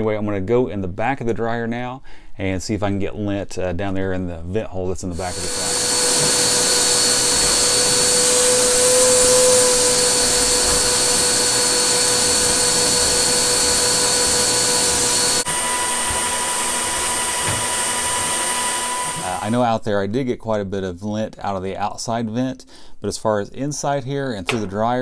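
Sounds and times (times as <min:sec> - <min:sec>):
vacuum cleaner whining: 0:05.1 - 0:19.6.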